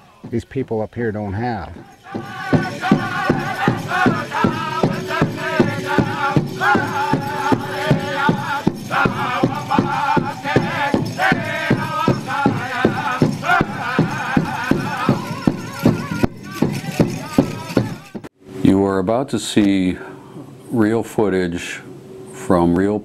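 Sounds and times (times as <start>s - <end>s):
drum beat: 1.7s - 18.3s
wavering melody: 1.9s - 18.2s.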